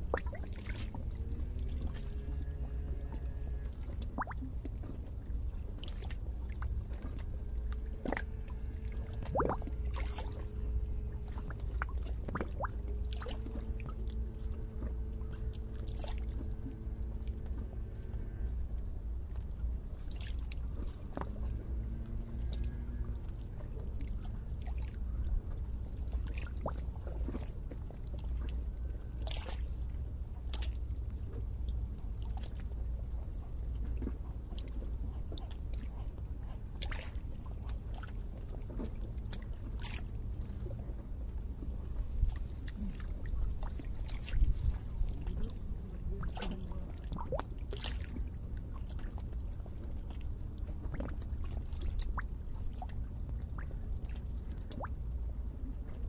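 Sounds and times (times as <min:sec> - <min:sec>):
low steady rumble: 0:00.0 - 0:56.0
water bubbling and gurgling: 0:00.0 - 0:56.0.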